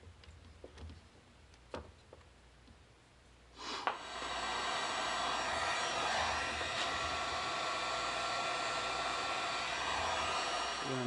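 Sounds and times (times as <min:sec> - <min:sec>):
heat gun blowing: 0:03.6 - 0:11.0.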